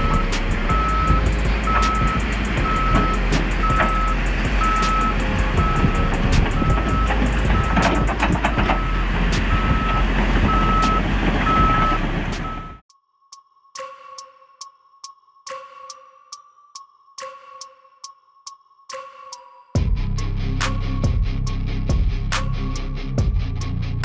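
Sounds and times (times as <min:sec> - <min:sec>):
heavy vehicle engine: 0:00.0 - 0:12.8
reversing alarm beeping: 0:00.0 - 0:12.8.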